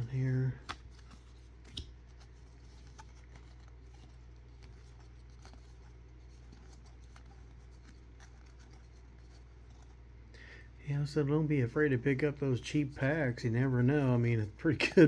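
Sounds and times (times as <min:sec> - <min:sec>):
cards rustling: 0:00.0 - 0:10.1
low steady hum: 0:00.0 - 0:15.0.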